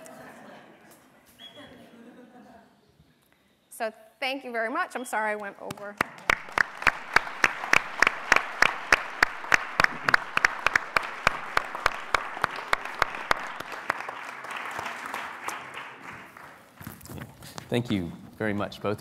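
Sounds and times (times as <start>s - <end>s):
close loud hand clapping: 5.7s - 16.9s
audience applauding: 5.8s - 17.1s.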